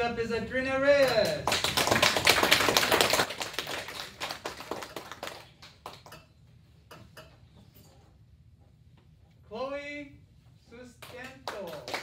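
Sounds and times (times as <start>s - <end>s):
children clapping: 1.0s - 6.2s, 11.0s - 12.0s.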